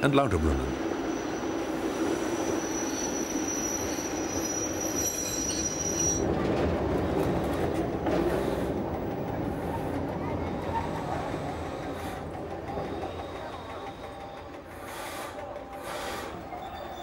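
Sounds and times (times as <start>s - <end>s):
electric train rumbling: 0.0s - 17.0s
high wheel squeal: 0.9s - 6.3s.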